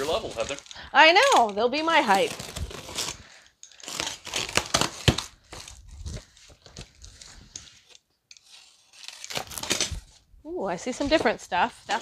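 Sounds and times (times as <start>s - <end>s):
plastic crinkling and tearing: 0.0s - 10.2s
box cutter slicing plastic wrap: 1.2s - 5.8s, 8.4s - 10.1s.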